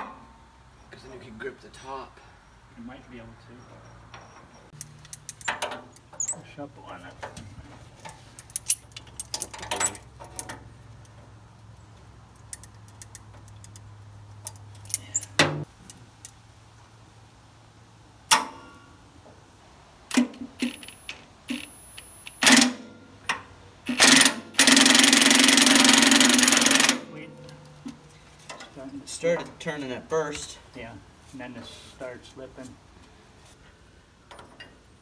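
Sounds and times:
metal tools clinking on bolt: 0:04.1 - 0:06.4, 0:08.0 - 0:11.2, 0:14.4 - 0:15.4, 0:20.6 - 0:22.7.

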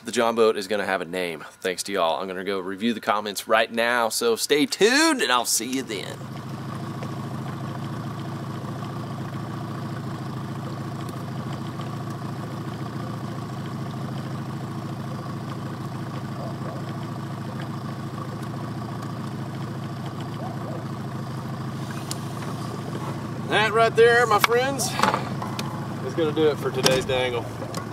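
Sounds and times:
outboard motor running at low throttle: 0:05.9 - 0:27.9.

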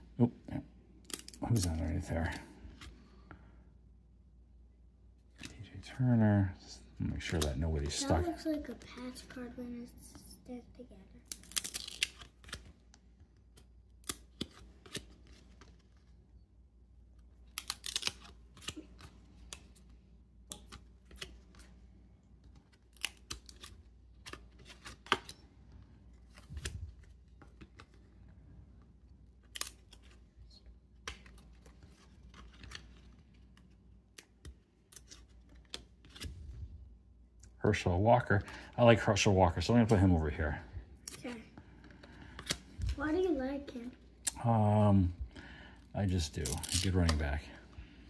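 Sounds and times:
cards clicking and slapping: 0:07.1 - 0:08.0, 0:11.2 - 0:16.1, 0:17.4 - 0:21.8, 0:22.4 - 0:28.2, 0:30.9 - 0:36.4, 0:41.0 - 0:43.0, 0:46.4 - 0:47.3.

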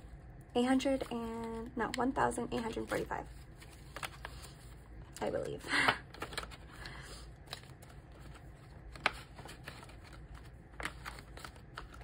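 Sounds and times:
paper banknotes rustling: 0:00.7 - 0:12.0.

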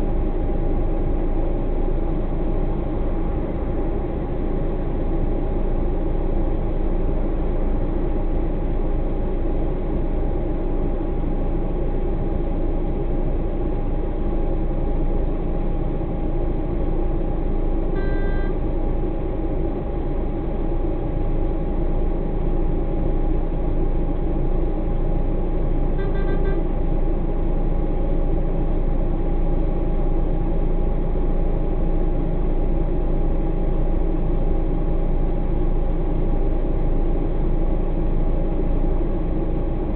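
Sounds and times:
truck engine idling: 0:00.0 - 0:39.9
short beeps: 0:18.0 - 0:18.6, 0:26.0 - 0:26.6.

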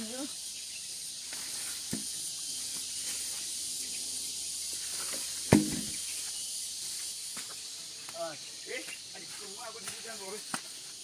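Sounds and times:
high-pitched insect drone: 0:00.0 - 0:11.0
sharp knock: 0:05.5 - 0:06.0.

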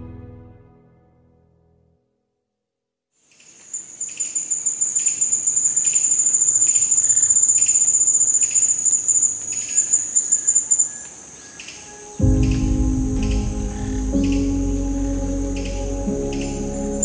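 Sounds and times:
insect chirps: 0:03.2 - 0:17.0
insect fast-pulsing trill: 0:03.7 - 0:12.6.

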